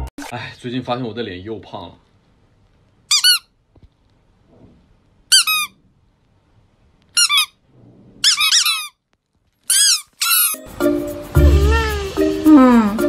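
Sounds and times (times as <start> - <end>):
squeak toy squeaking: 3.1 - 3.5, 5.3 - 5.8, 7.2 - 7.6, 8.2 - 9.0, 9.6 - 10.6.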